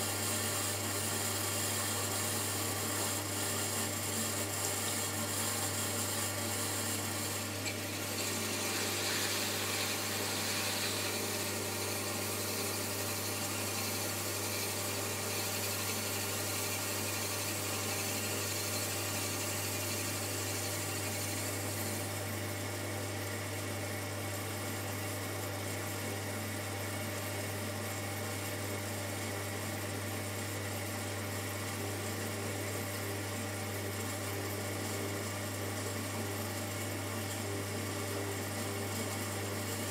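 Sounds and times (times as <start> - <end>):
potter's wheel humming: 0.0 - 39.9.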